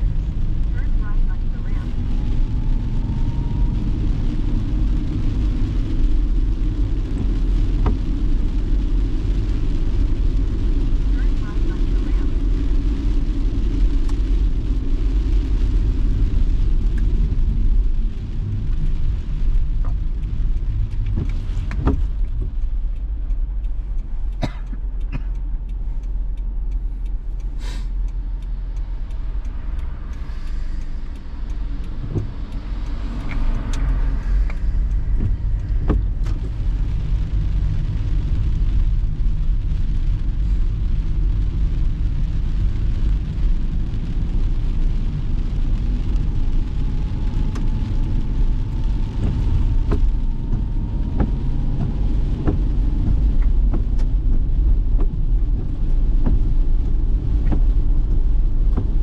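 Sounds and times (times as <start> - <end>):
engine and tyres rumbling: 0.0 - 59.0
tyre hiss on wet road: 26.8 - 28.6, 29.2 - 59.0.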